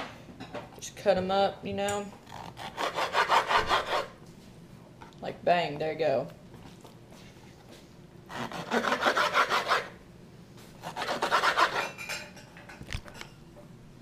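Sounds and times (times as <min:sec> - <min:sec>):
knife sawing through fish on wood: 0:02.3 - 0:04.2, 0:08.3 - 0:09.9, 0:10.8 - 0:11.9.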